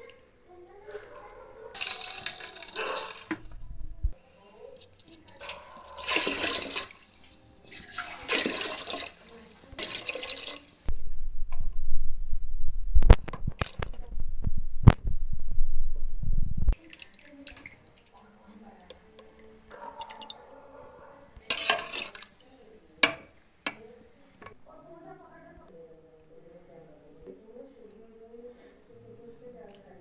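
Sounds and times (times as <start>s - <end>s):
water sloshing in a pot: 0.0s - 3.6s, 4.4s - 10.9s, 16.7s - 24.6s
low rumble: 3.4s - 4.2s, 10.9s - 16.8s.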